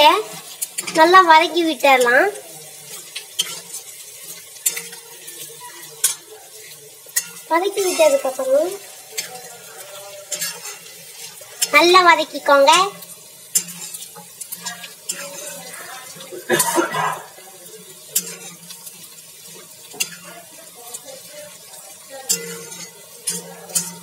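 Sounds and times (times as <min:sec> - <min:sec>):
ladle scraping frying onions: 0:00.0 - 0:24.0
ladle clinking against pan: 0:07.1 - 0:08.3.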